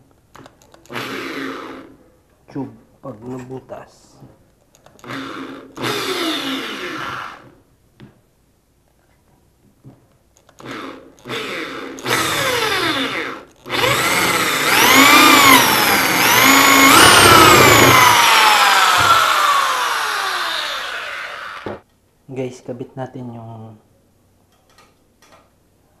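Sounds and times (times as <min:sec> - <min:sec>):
electric drill boring metal tube: 0:00.9 - 0:01.9, 0:05.0 - 0:07.5, 0:10.6 - 0:21.7.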